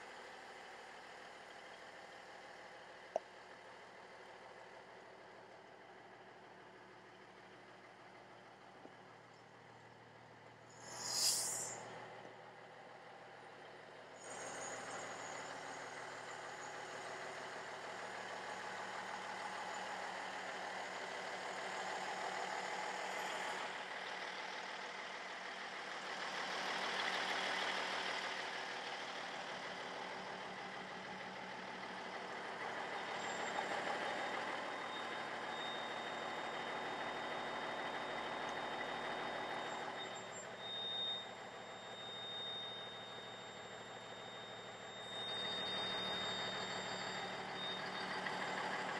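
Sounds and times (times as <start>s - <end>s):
thin high steady tone: 10.7s - 11.8s
diesel truck idling: 15.2s - 48.9s.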